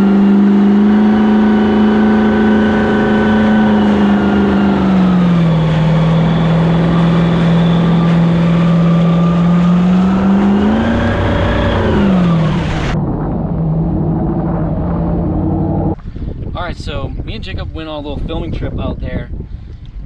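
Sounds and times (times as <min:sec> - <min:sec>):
spray rushing off hull: 0:00.0 - 0:13.0
jet ski engine running: 0:00.0 - 0:16.3.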